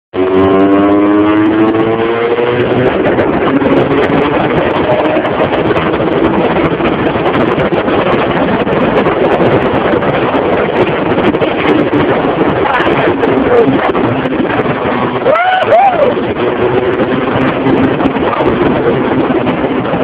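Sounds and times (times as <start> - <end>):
wind noise on microphone: 0.1 - 20.0
small motorcycle engine accelerating: 0.2 - 8.7.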